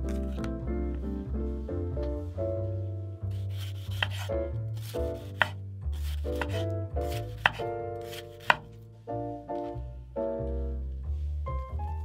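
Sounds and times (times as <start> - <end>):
instrumental background music: 0.0 - 12.0
knife slicing pepper on board: 3.4 - 4.3, 4.9 - 8.7.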